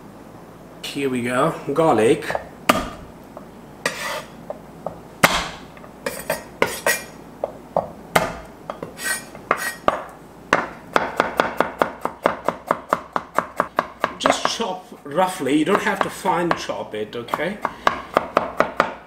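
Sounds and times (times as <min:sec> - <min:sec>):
fast knife chopping on board: 0:02.7 - 0:03.0, 0:05.2 - 0:05.6, 0:08.2 - 0:08.4, 0:10.5 - 0:14.6, 0:17.3 - 0:19.0
knife knocking and scraping on board: 0:05.2 - 0:11.6.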